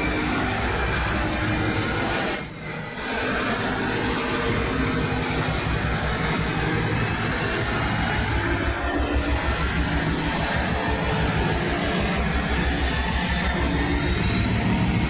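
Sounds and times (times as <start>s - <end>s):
diesel locomotive engine throbbing: 0.0s - 15.0s
short high beep: 2.3s - 3.1s.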